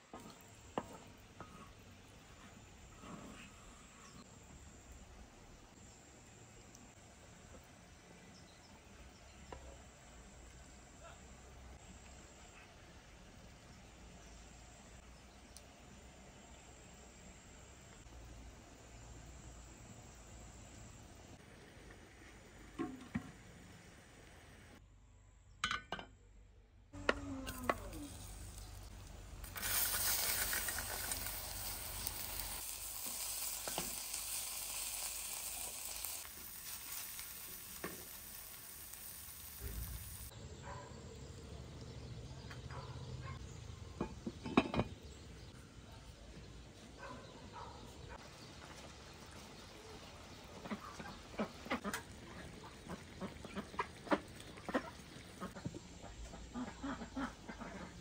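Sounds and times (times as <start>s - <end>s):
berries sizzling in a pan: 0.1s - 12.1s, 27.0s - 40.4s
pans and utensils knocking: 44.0s - 45.0s.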